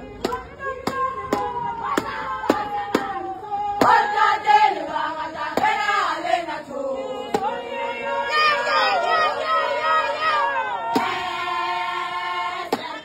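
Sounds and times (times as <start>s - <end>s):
women singing in unison: 0.0s - 13.0s
handclaps keeping time: 0.2s - 3.2s.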